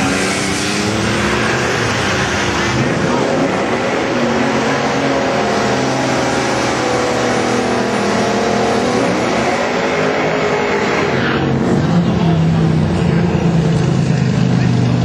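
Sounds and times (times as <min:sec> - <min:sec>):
car engines at full throttle: 0:00.0 - 0:15.0.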